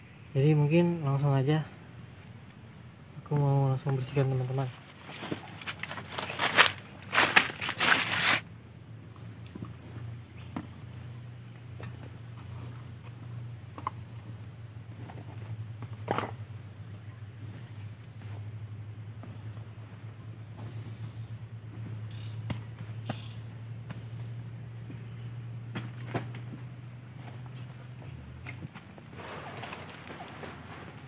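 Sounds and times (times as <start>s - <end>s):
high-pitched insect chorus: 0.0s - 31.0s
camping gear rustling and knocking: 3.8s - 8.4s, 14.9s - 16.7s, 20.4s - 31.0s.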